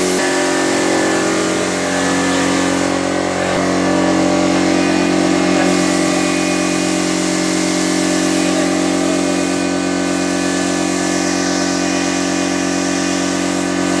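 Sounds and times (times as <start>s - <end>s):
air compressor running: 0.0s - 14.0s.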